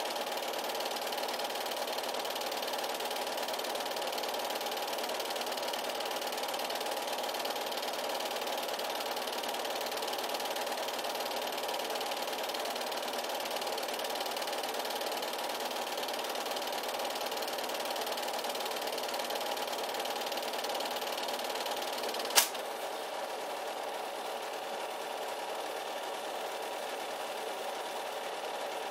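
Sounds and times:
film projector whirring: 0:00.0 - 0:28.9
sharp click: 0:22.2 - 0:22.6.

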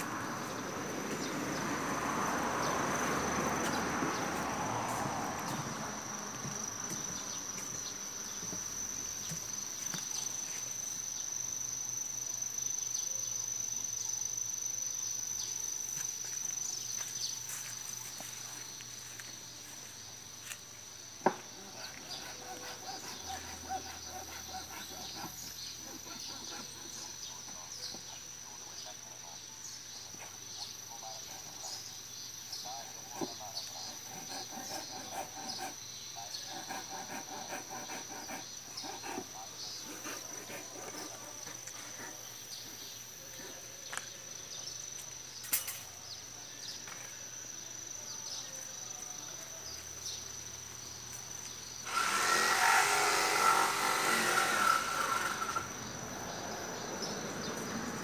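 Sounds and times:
high-pitched insect drone: 0:50.6 - 0:58.0.

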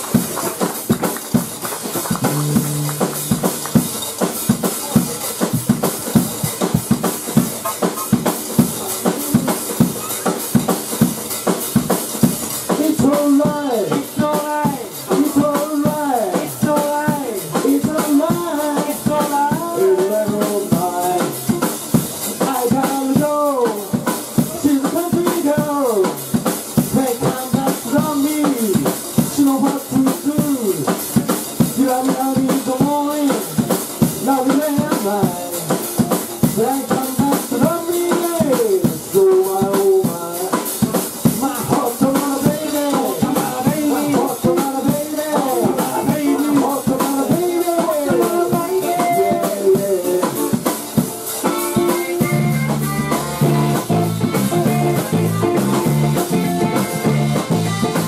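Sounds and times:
drum kit beat: 0:00.0 - 0:58.0
accordion: 0:02.1 - 0:04.2, 0:49.8 - 0:58.0
electric bass: 0:02.1 - 0:04.3, 0:51.6 - 0:58.0
man singing: 0:12.7 - 0:21.8, 0:22.4 - 0:26.2, 0:26.8 - 0:31.0, 0:31.6 - 0:50.8, 0:54.4 - 0:55.3.

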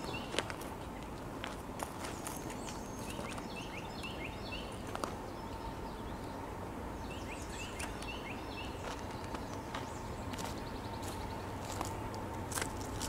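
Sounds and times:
songbird singing falling notes: 0:00.0 - 0:00.4, 0:02.3 - 0:06.4, 0:07.0 - 0:11.4
outdoor background noise: 0:00.0 - 0:13.0.

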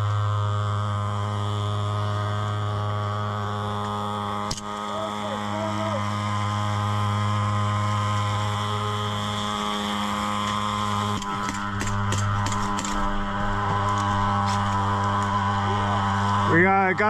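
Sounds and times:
background music with low drone: 0:00.0 - 0:17.0.

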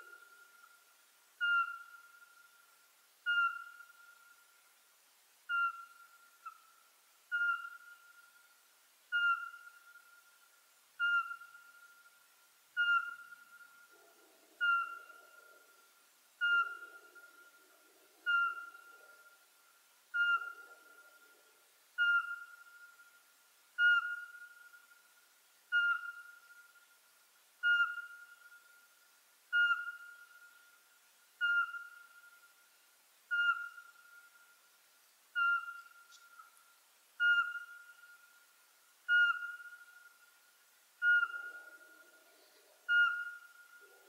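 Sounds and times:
owl piping whistle: 0:01.4 - 0:02.5, 0:03.2 - 0:04.3, 0:05.5 - 0:06.7, 0:07.3 - 0:08.3, 0:09.1 - 0:10.2, 0:11.0 - 0:12.1, 0:12.8 - 0:14.0, 0:14.6 - 0:15.7, 0:16.4 - 0:17.6, 0:18.2 - 0:19.4, 0:20.1 - 0:21.2, 0:22.0 - 0:23.2, 0:23.8 - 0:25.0, 0:25.7 - 0:26.8, 0:27.6 - 0:28.8, 0:29.5 - 0:30.6, 0:31.4 - 0:32.5, 0:33.3 - 0:34.5, 0:35.4 - 0:36.6, 0:37.2 - 0:38.3, 0:39.1 - 0:40.2, 0:41.0 - 0:42.0, 0:42.9 - 0:43.9.

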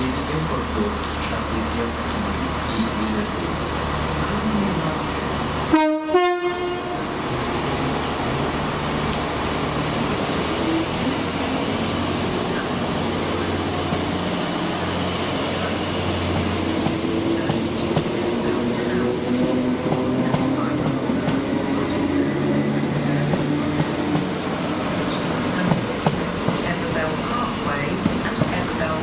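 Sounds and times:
train engine rumble: 0:00.0 - 0:29.0
two-tone train horn blast: 0:05.7 - 0:07.2.

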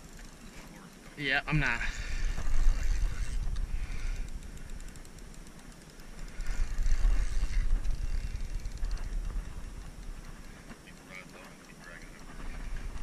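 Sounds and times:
fishing reel ticking: 0:00.0 - 0:13.0
wind buffeting microphone: 0:01.4 - 0:05.1, 0:06.1 - 0:10.8, 0:12.1 - 0:13.0.

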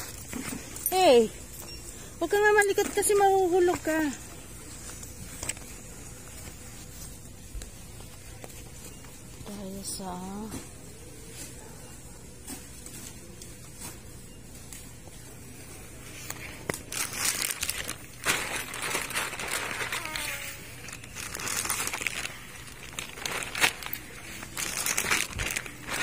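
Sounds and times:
plastic packaging crinkling: 0:16.3 - 0:26.0.

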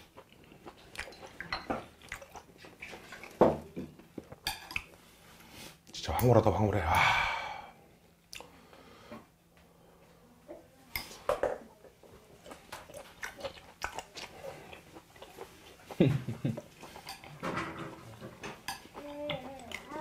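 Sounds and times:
man chewing wetly: 0:00.0 - 0:03.4, 0:12.4 - 0:20.0.

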